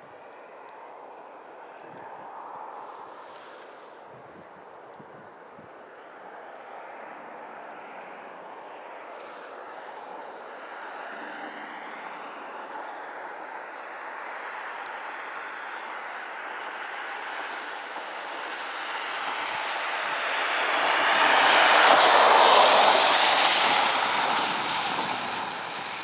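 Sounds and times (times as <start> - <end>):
passing vehicle rushing: 9.0 - 16.2, 16.8 - 26.0.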